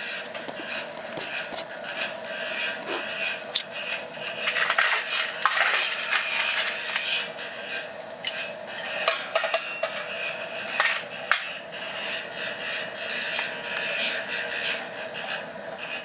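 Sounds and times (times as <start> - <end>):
wood pellet fire crackling: 0.0 - 9.0
blower humming: 0.0 - 16.0
metal clinks and scrapes: 8.2 - 11.6.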